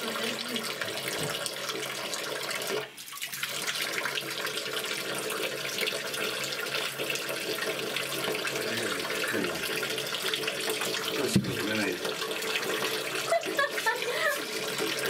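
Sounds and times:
tap water splashing into tub: 0.0 - 15.0.

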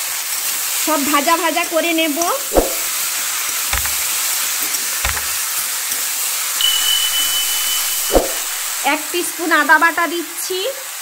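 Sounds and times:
vegetables sizzling in oil: 0.0 - 11.0
metal spatula knocking on pan: 3.8 - 4.1, 5.0 - 5.4
thin high tone: 6.6 - 8.9.

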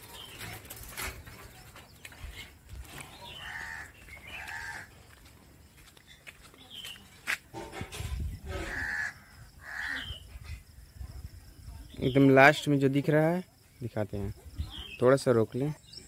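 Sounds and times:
outdoor village background: 0.0 - 16.0
soft footsteps: 0.2 - 8.2
harsh animal calls: 8.5 - 10.3.

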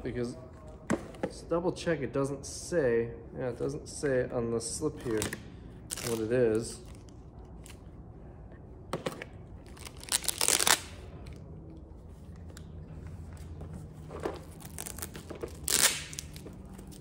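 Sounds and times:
cardboard and plastic tearing: 9.8 - 10.9, 14.4 - 17.0.

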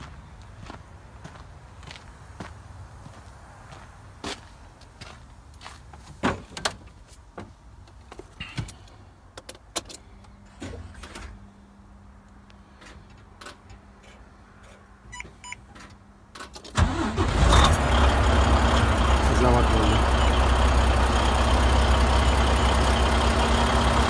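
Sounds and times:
diesel engine cranking and starting: 15.7 - 24.0.

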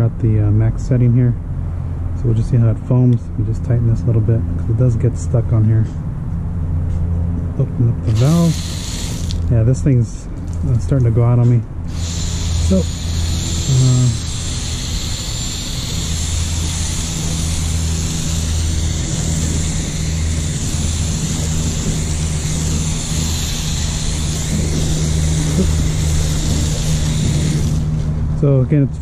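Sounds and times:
steady low hum: 0.0 - 29.0
foam gun spraying hiss: 8.1 - 9.5, 11.9 - 28.2.

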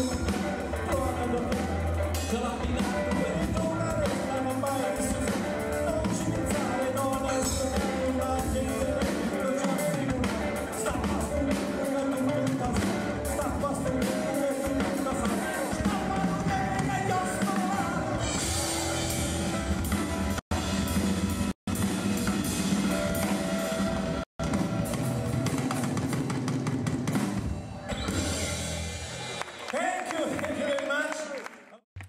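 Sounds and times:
man singing: 0.0 - 19.6
rock band playing: 0.0 - 29.7.

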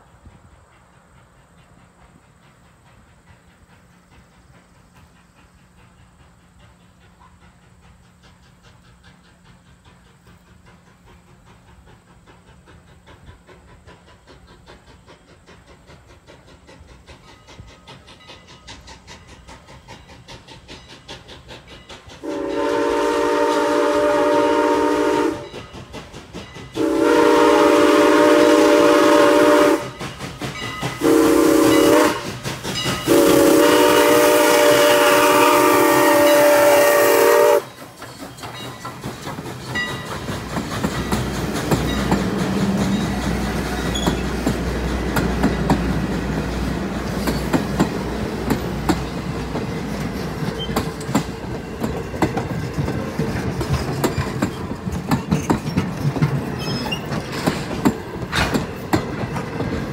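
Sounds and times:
rapid beat of approaching train: 0.0 - 59.9
steam locomotive whistle blasts: 22.2 - 25.6, 26.8 - 30.0, 31.0 - 32.4, 33.0 - 37.8.

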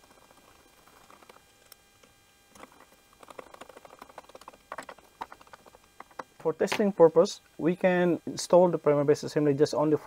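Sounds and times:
hex driver clicking and rattling: 0.8 - 6.8.

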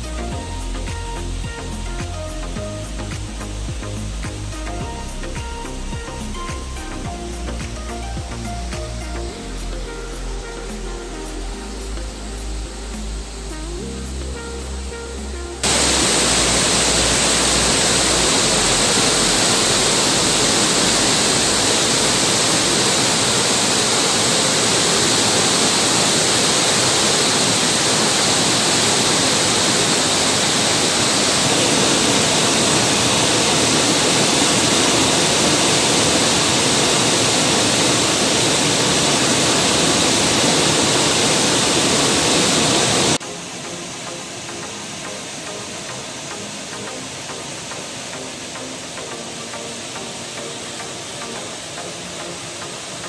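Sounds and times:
waterfall roaring: 15.6 - 53.0.

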